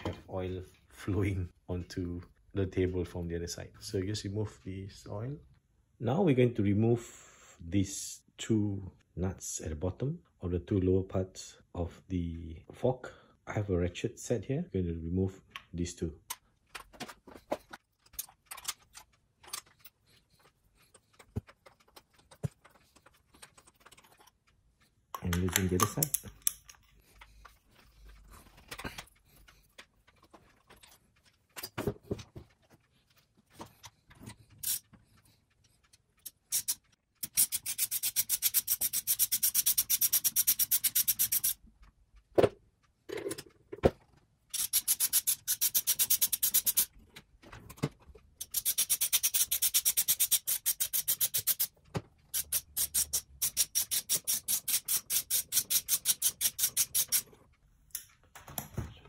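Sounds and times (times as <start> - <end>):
socket ratchet clicking: 36.2 - 41.6, 44.5 - 46.9, 48.4 - 57.3.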